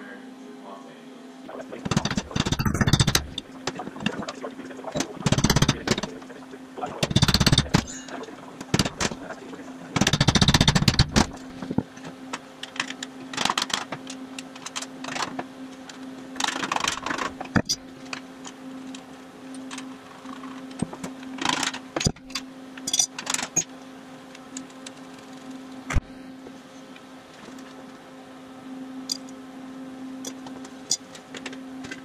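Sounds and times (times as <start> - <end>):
steady low hum: 0.0 - 32.0
metallic clanks of tools: 22.9 - 23.7.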